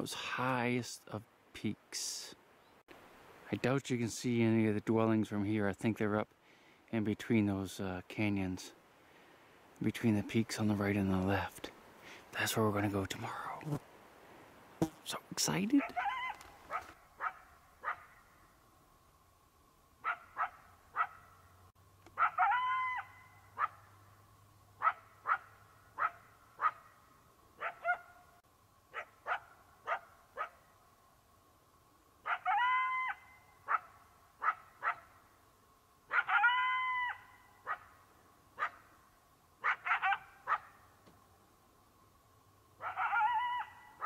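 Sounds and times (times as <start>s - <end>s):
dog whining yelp: 15.8s - 18.0s, 22.2s - 23.7s, 42.8s - 43.9s
dog yapping: 15.8s - 18.2s, 20.0s - 21.3s, 22.2s - 23.8s, 24.8s - 26.9s, 27.6s - 28.2s, 28.9s - 30.6s, 32.2s - 35.1s, 36.1s - 37.9s, 38.6s - 38.8s, 39.6s - 40.8s, 42.8s - 44.0s.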